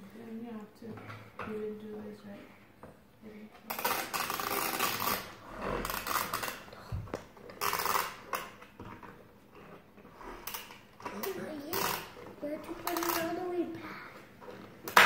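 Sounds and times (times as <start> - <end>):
plastic scraping against glass: 7.4 - 13.7.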